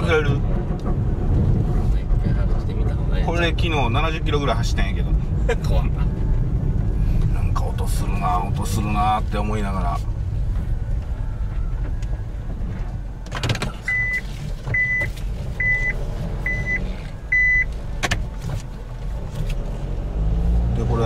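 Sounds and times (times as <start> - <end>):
car engine and road rumble: 0.0 - 21.0
reverse warning beeps: 13.8 - 17.7.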